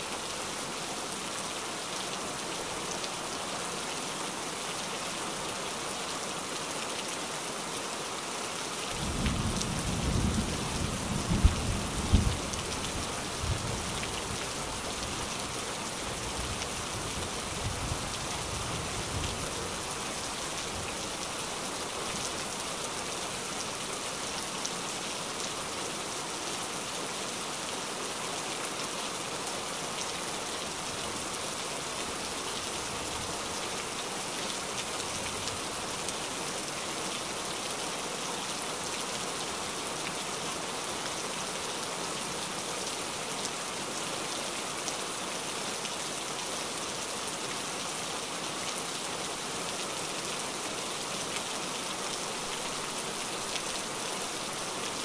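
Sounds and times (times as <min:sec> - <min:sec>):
heavy rain falling: 0:00.0 - 0:55.0.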